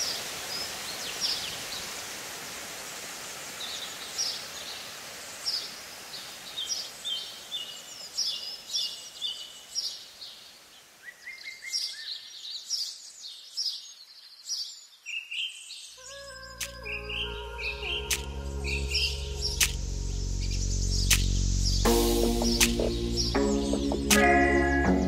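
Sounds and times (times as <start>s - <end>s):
waterfall rushing into pool: 0.0s - 11.9s
small birds chirping: 3.1s - 25.0s
music: 16.5s - 25.0s.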